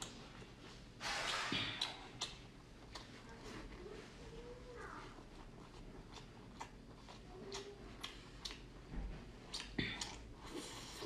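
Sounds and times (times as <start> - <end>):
chewing mouth sounds: 1.3 - 3.4, 4.9 - 11.0.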